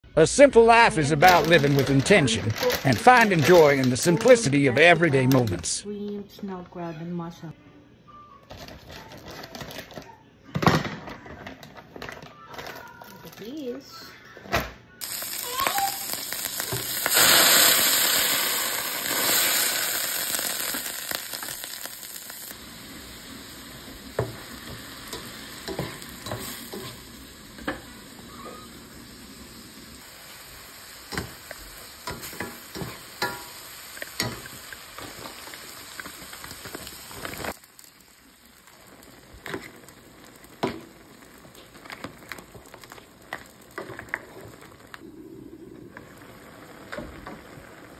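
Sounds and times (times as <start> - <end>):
vegetables sizzling in oil: 0.9 - 5.6, 15.0 - 45.1, 45.9 - 47.9.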